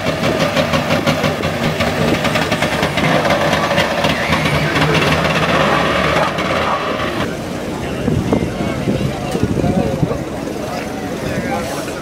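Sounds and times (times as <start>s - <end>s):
two-stroke car engine running: 0.0s - 7.3s.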